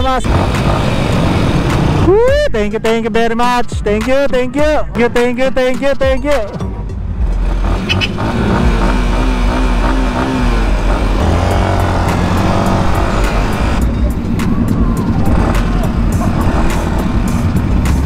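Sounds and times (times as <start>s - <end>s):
motorcycle engine revving: 0.0s - 2.2s, 7.2s - 18.0s.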